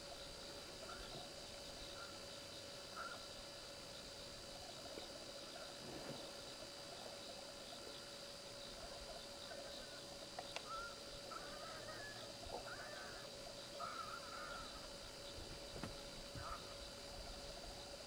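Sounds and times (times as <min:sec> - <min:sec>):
night insects chirring: 0:00.0 - 0:18.0
short warbling animal calls: 0:02.9 - 0:03.3, 0:10.6 - 0:15.0, 0:16.3 - 0:16.9.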